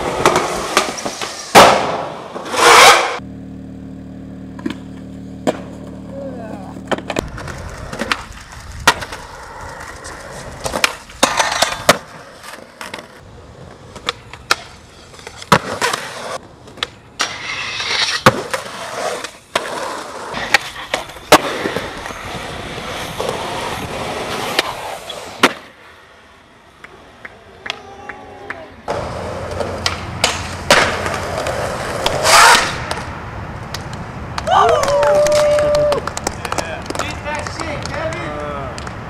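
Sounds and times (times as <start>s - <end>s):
skateboard wheels rolling on concrete: 0.0s - 39.0s
board scraping on metal handrail: 0.2s - 3.2s, 17.2s - 19.3s
skateboard clacks: 4.5s - 22.1s, 26.7s - 39.0s.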